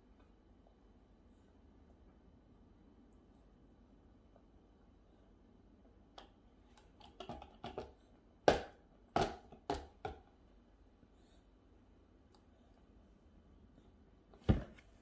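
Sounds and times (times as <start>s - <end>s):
plastic cup taps and knocks: 8.5s - 10.3s.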